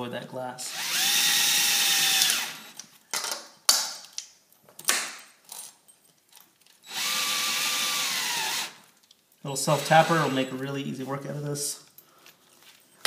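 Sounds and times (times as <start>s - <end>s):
cordless drill driving screw: 0.7s - 2.8s, 6.8s - 8.8s, 9.7s - 10.5s.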